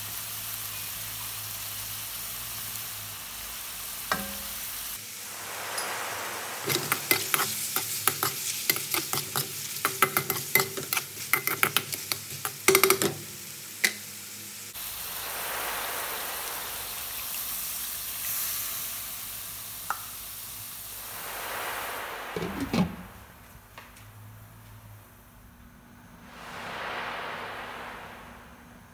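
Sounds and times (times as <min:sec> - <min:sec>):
chicken sizzling in frying pan: 0:00.0 - 0:22.5
utensil scraping a pan: 0:06.7 - 0:12.6.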